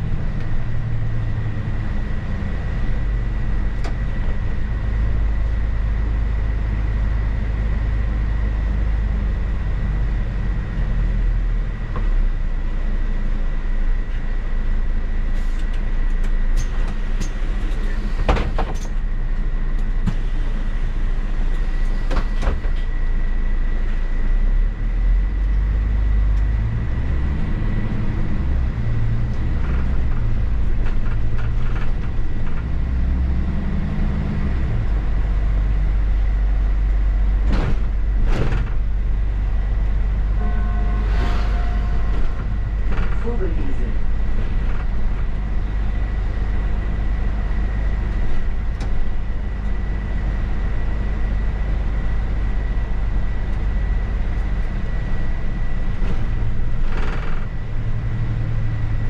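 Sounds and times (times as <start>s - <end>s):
bus engine and road rumble: 0.0s - 59.0s
high whine: 38.6s - 56.7s.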